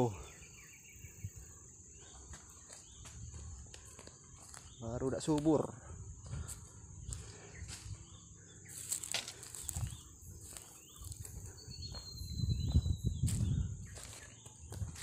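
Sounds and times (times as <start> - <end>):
footsteps crunching dry leaves: 2.1 - 15.0
wind buffeting microphone: 9.7 - 15.0.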